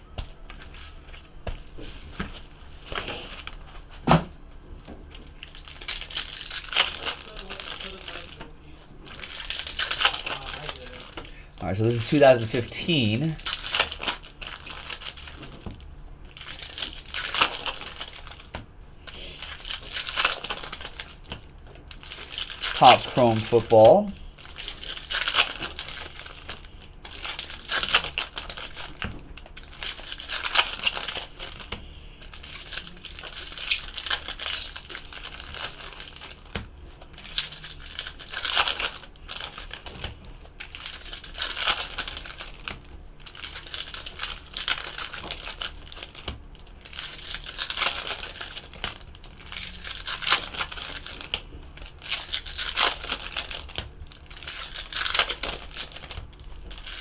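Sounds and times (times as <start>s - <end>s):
foil wrappers crinkling and tearing: 0.0s - 4.0s, 4.7s - 57.0s
cards being shuffled: 0.1s - 4.1s, 9.1s - 57.0s.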